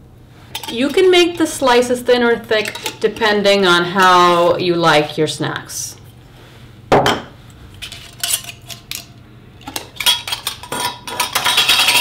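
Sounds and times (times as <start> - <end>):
glass jars clinking: 9.7 - 12.0.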